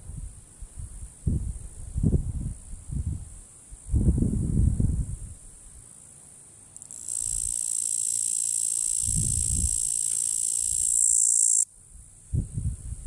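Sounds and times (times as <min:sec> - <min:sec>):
cicada buzzing: 0:06.8 - 0:11.7.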